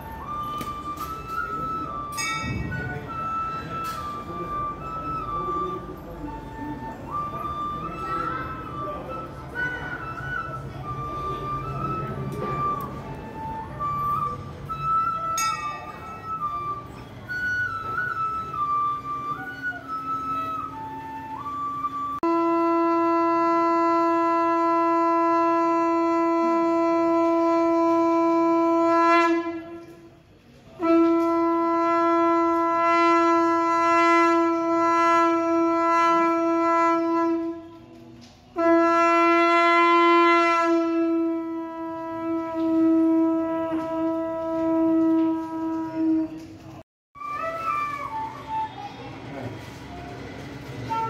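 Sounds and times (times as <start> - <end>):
conch shell blasts: 0.3 - 5.6, 22.2 - 30.1, 30.8 - 37.8, 38.6 - 46.4.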